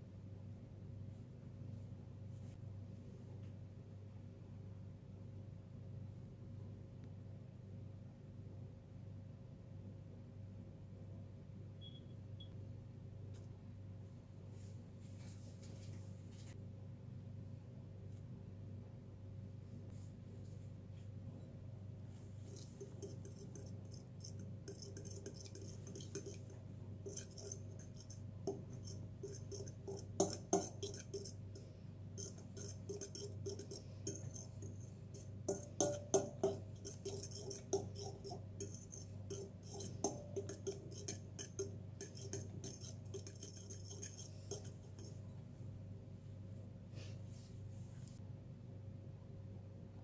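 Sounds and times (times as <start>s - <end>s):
metal spoon clinking in a bowl: 22.4s - 45.2s.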